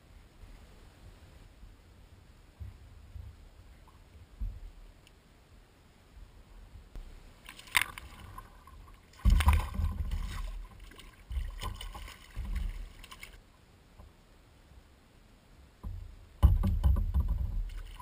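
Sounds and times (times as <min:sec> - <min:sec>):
fish thrashing and splashing: 0:07.5 - 0:13.4.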